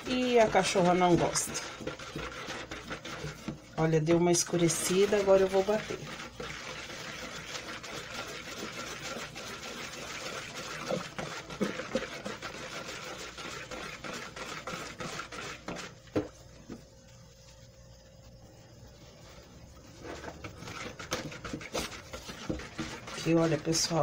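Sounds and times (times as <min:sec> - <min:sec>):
electric stick blender running: 0:04.4 - 0:15.9.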